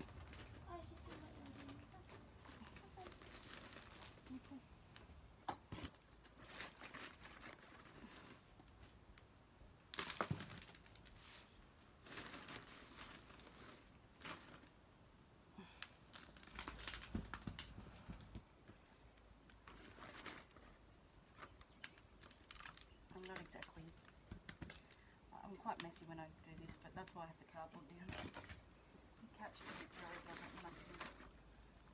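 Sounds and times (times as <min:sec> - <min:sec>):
plastic bag rustling: 0:00.0 - 0:04.6, 0:05.6 - 0:09.1, 0:09.9 - 0:14.9, 0:16.1 - 0:18.4, 0:19.0 - 0:25.0, 0:29.5 - 0:31.4.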